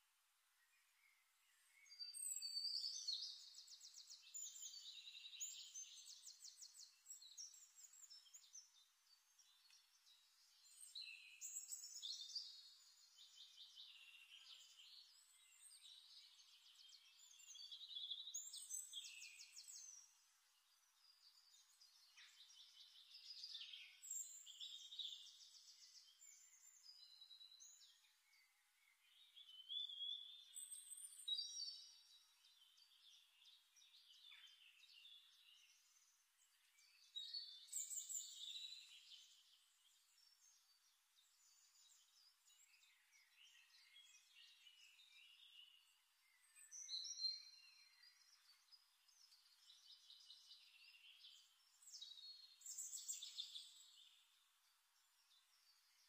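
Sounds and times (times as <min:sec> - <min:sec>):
faint birdsong chirps and trills: 0:00.0 - 0:56.0.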